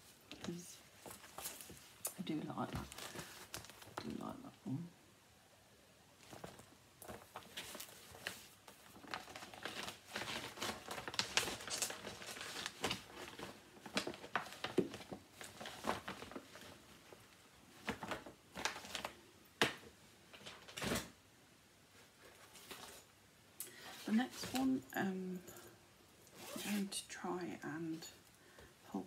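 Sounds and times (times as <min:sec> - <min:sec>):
paper rustling and crinkling: 0:00.0 - 0:02.0, 0:02.6 - 0:04.2, 0:06.2 - 0:21.2, 0:21.9 - 0:23.1, 0:23.8 - 0:24.8.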